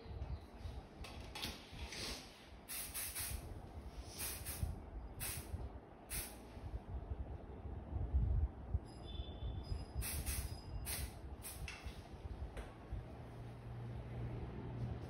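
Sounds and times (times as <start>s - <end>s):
aerosol spray hissing: 2.7s - 3.4s, 4.1s - 5.5s, 6.1s - 6.4s, 10.0s - 11.7s.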